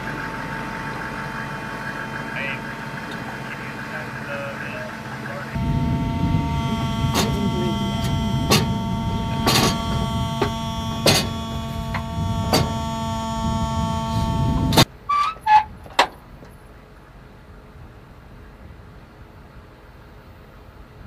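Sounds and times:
machine running: 0.0s - 14.9s
sharp metallic knocks: 6.9s - 12.9s.

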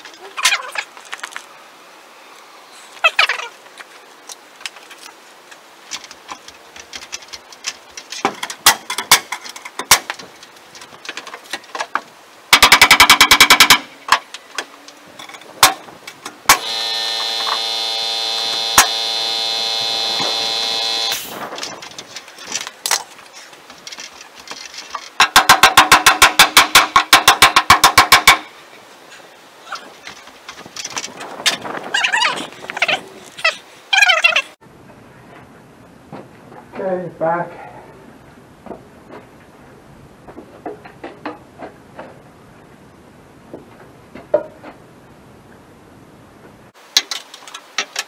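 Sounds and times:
power tool rattling hammering: 12.5s - 13.9s, 16.5s - 21.3s, 25.2s - 28.5s
motor whine: 16.5s - 21.4s.

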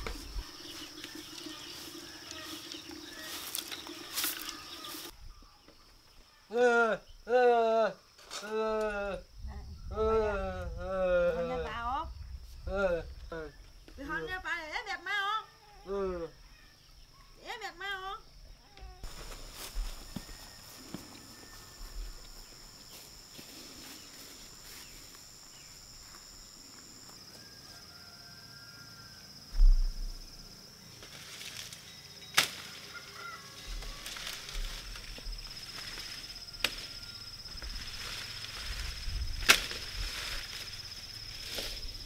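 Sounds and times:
leafy plants rustling: 0.0s - 5.2s, 19.0s - 27.2s, 29.6s - 42.0s
high insect whine: 0.0s - 42.0s
low thump: 29.5s - 30.3s
plant stems snapping: 32.4s - 32.7s, 39.4s - 40.0s.

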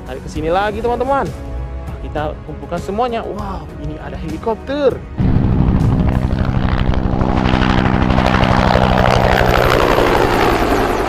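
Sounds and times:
helicopter engine hum: 5.2s - 11.0s
helicopter rotor beating: 5.2s - 11.0s
rushing sound: 5.2s - 11.0s.

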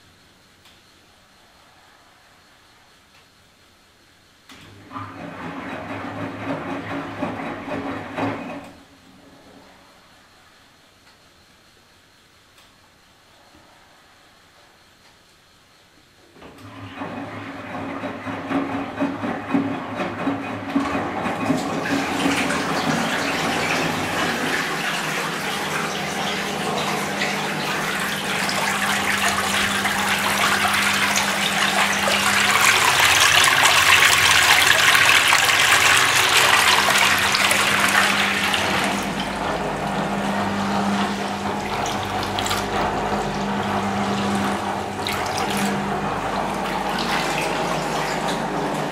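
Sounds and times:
drain pump humming: 4.5s - 9.7s, 16.3s - 48.9s
water splashing into a sink: 20.3s - 48.9s.

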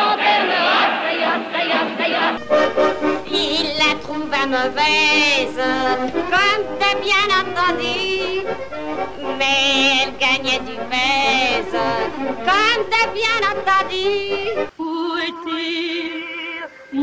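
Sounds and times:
instrumental accompaniment: 2.3s - 14.7s
high voice singing with vibrato: 3.2s - 17.0s.

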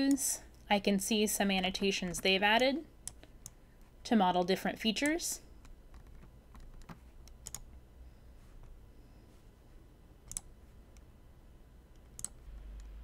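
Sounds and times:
low steady hum: 0.0s - 13.0s
computer mouse clicks: 5.0s - 7.7s, 10.2s - 11.1s, 11.9s - 13.0s.

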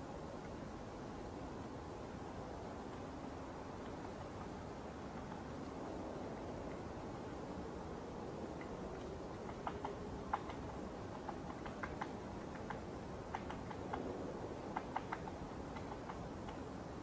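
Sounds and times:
low background hiss: 0.0s - 17.0s
woodpecker tapping on wood: 3.8s - 5.7s, 8.6s - 16.7s.

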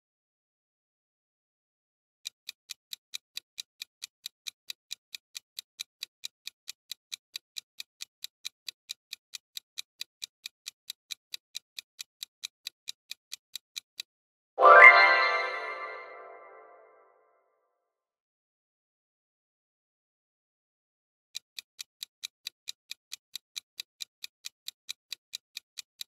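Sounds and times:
clock ticks: 2.2s - 14.1s, 21.4s - 26.0s.

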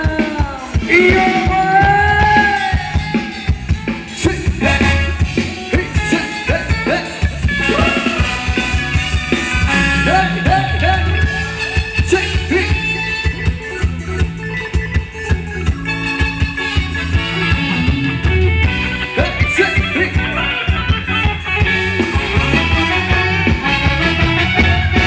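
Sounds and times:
person singing: 0.0s - 3.6s, 5.6s - 8.6s
drums dance beat: 0.0s - 25.0s.

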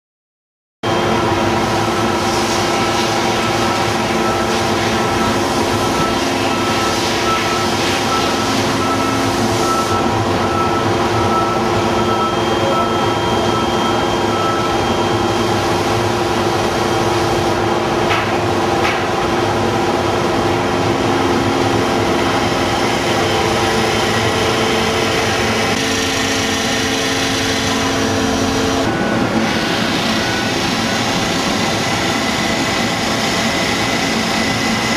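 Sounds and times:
machinery hum and hiss: 0.9s - 34.9s
held machine tones: 3.6s - 17.1s, 20.9s - 32.5s.

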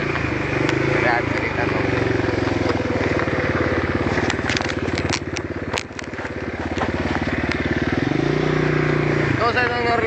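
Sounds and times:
quad bike engine running: 0.0s - 10.0s
sharp clicks and crackles: 4.1s - 7.7s.

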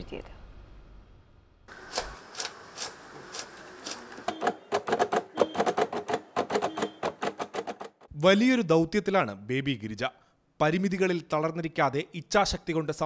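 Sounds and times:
braille writer keys clacking: 4.2s - 8.1s.

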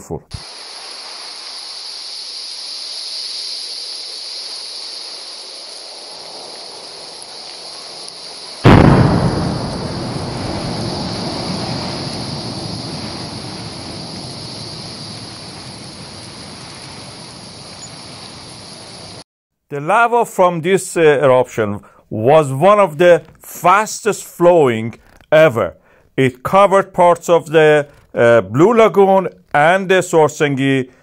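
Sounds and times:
steady hiss: 0.0s - 19.2s
eruption boom and rumble: 5.9s - 19.2s.

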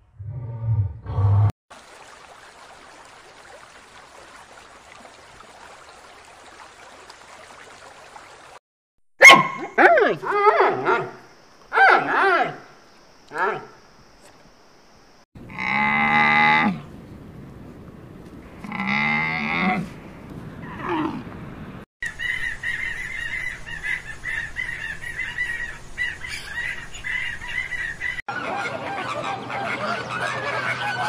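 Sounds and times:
flamingos honking and chattering: 23.3s - 31.0s.

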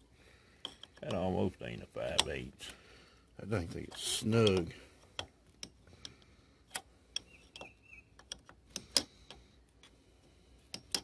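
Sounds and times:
wrench clicking on bolt: 10.7s - 11.0s.

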